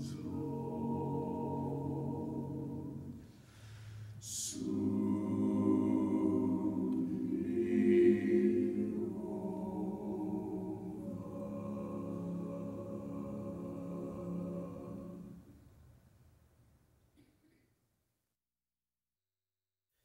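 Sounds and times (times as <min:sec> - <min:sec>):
mixed choir singing chords: 0:00.0 - 0:15.5.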